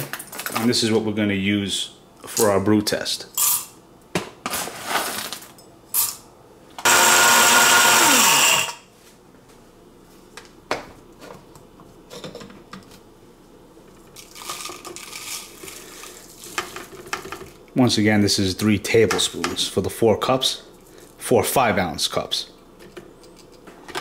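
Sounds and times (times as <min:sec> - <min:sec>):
coffee grinder motor grinding: 0:06.8 - 0:08.8
coffee grounds rustling into filter: 0:14.2 - 0:17.0.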